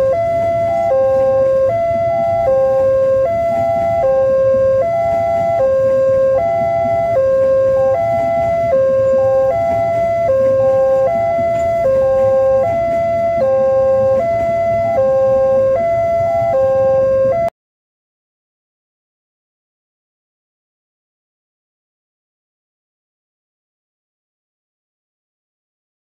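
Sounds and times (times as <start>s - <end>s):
level crossing alarm tones: 0.0s - 17.5s
train rumbling past: 0.0s - 17.5s.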